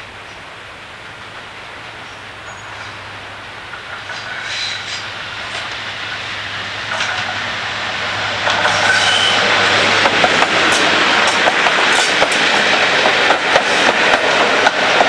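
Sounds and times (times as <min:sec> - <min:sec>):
diesel locomotive passing: 0:00.0 - 0:15.0
high wheel squeals: 0:02.1 - 0:03.0, 0:08.7 - 0:09.5
wheels clicking over rail joints: 0:08.3 - 0:15.0.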